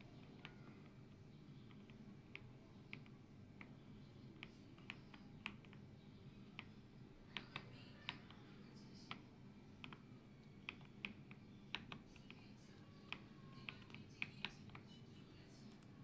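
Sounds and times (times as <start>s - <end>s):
mechanical keyboard typing: 10.6s - 12.5s.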